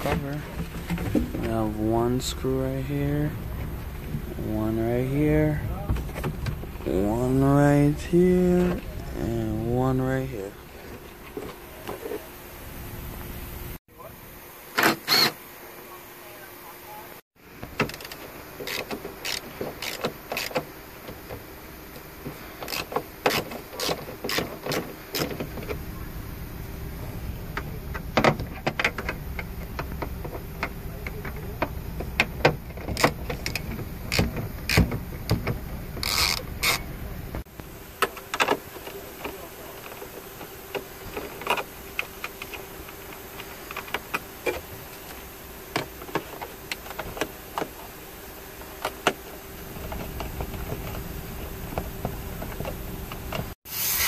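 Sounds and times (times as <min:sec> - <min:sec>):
ratchet wrench clicking: 0:36.0 - 0:36.8.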